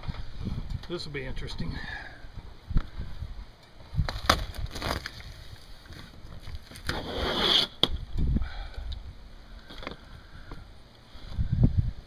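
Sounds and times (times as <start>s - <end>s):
wood cracking: 4.0s - 7.0s
wood ripping tear: 4.1s - 5.4s, 6.6s - 7.8s.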